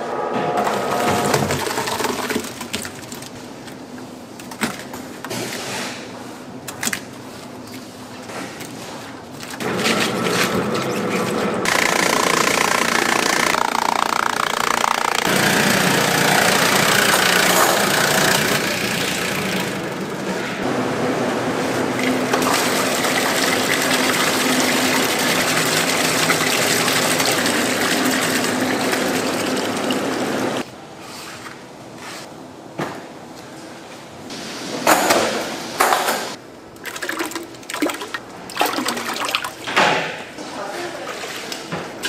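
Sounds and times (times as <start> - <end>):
processing machine noise: 9.6 - 30.6
running and splashing water: 22.4 - 30.6.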